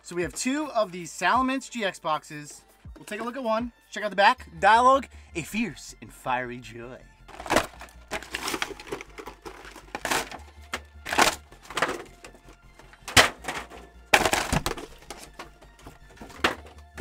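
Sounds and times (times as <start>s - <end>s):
cardboard tearing and rustling: 7.3s - 17.0s.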